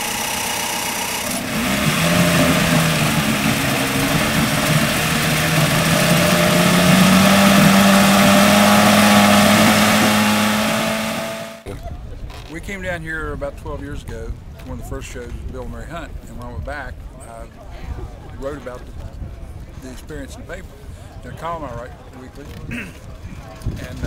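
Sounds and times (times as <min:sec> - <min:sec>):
outboard motor running: 0:00.0 - 0:11.7.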